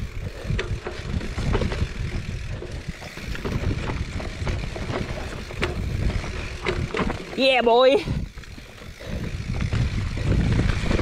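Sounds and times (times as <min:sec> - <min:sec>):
bike knocking and rattling: 0:00.0 - 0:11.0
bike tyres rolling on dirt trail: 0:00.0 - 0:11.0
wind rumble on microphone: 0:00.0 - 0:11.0.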